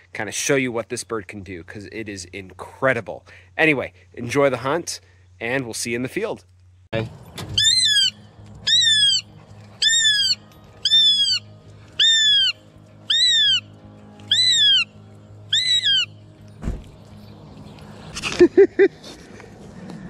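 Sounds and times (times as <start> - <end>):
hawk calling: 7.6 - 16.2.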